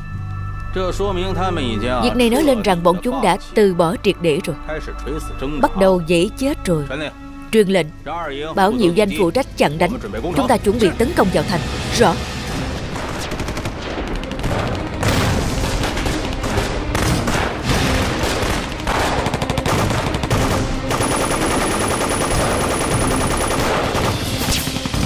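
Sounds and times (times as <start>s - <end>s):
machine guns firing rapid bursts: 13.0s - 14.1s, 18.2s - 25.0s.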